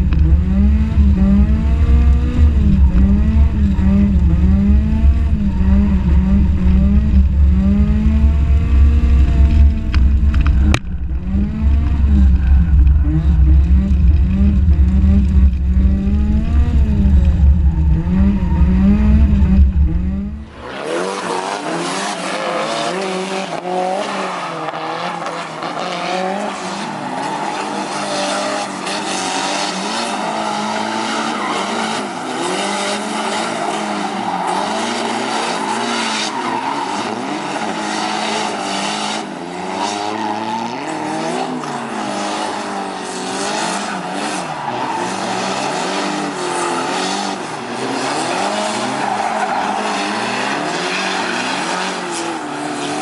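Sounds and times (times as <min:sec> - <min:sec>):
car engine revving: 0:00.0 - 0:53.0
tyres squealing and skidding: 0:24.0 - 0:38.8, 0:39.8 - 0:53.0.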